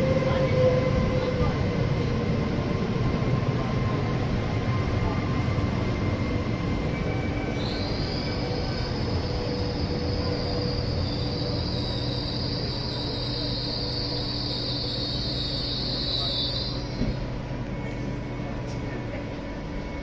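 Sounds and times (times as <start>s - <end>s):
electric train braking: 6.8s - 17.5s
high brake squeal: 7.0s - 18.2s.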